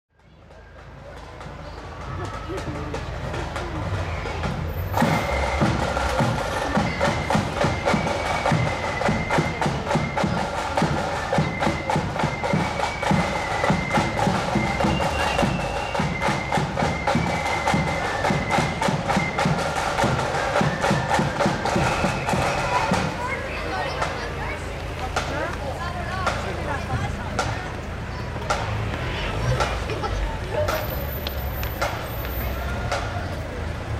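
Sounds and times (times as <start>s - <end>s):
side drum strokes: 1.4s - 24.3s.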